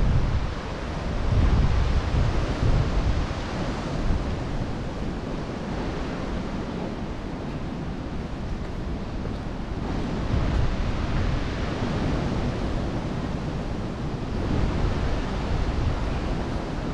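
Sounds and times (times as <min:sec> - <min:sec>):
wind buffeting microphone: 0:00.0 - 0:16.9.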